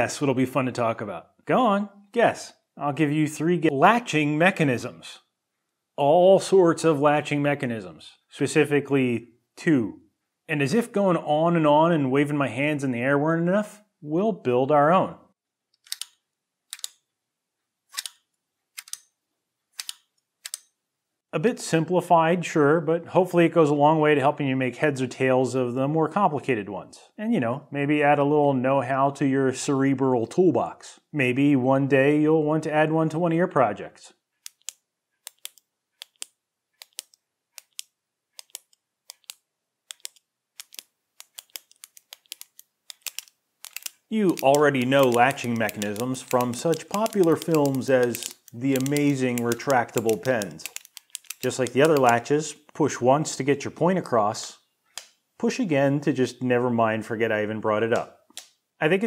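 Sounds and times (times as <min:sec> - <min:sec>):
pen button clicks: 0:34.5 - 0:52.2.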